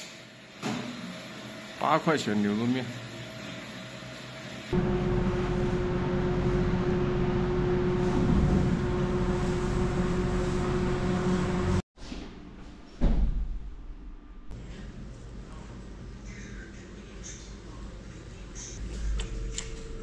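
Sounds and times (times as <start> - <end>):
mechanical hum and rushing: 4.7 - 11.8.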